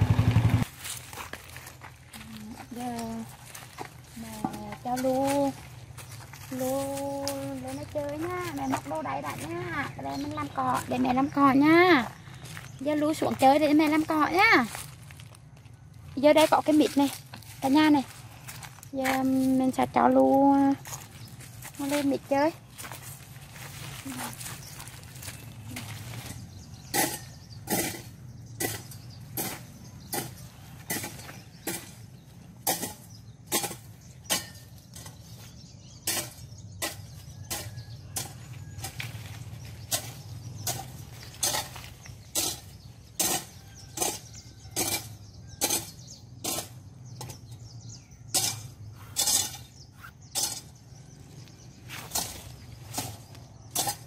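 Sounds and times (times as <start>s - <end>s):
hoe chopping ground: 25.2s - 54.0s.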